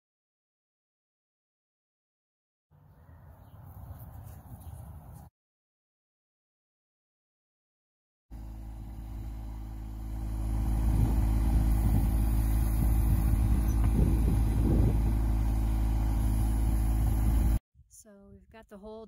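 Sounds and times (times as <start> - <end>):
tractor engine running: 8.3 - 17.6.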